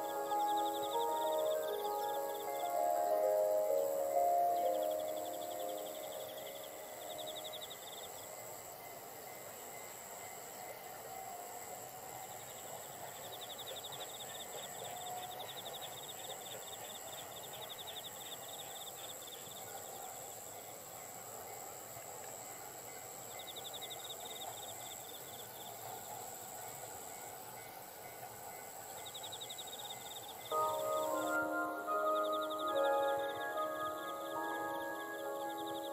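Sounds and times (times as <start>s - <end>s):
distant train rumble: 0.0s - 18.8s, 19.6s - 35.9s
high-pitched insect trill: 0.0s - 35.9s
rapidly pulsed insect chirp: 0.0s - 35.9s.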